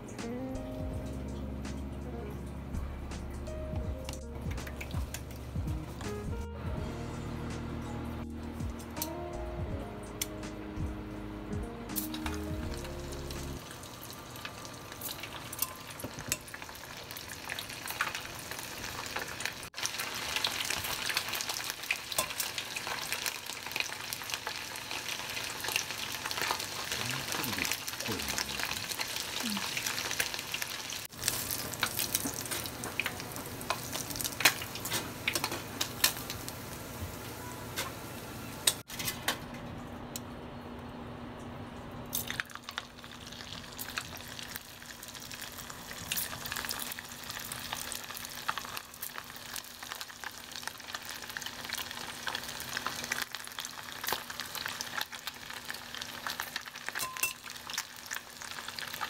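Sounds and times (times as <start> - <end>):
fish deep-frying in oil: 4.4 - 6.0, 12.0 - 39.0, 42.1 - 59.0.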